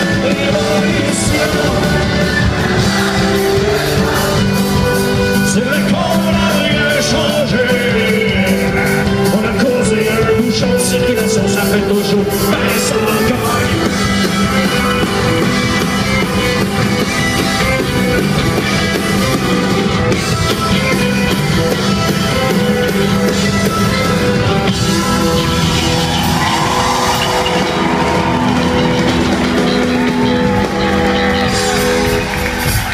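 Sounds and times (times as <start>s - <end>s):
person singing: 0.0s - 16.8s
drums: 0.0s - 32.9s
electric guitar: 0.0s - 32.9s.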